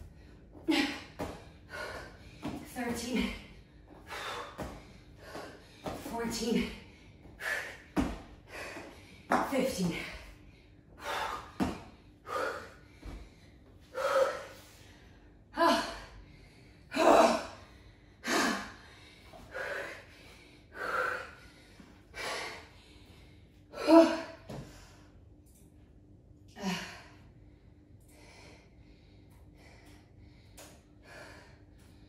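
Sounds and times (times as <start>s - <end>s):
woman breathing hard and gasping: 0.0s - 25.1s.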